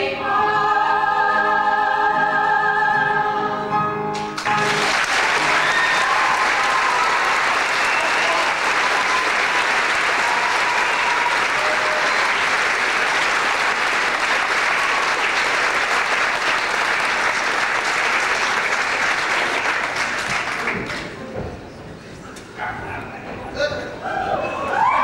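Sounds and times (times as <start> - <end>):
audience applauding: 4.2 - 21.2.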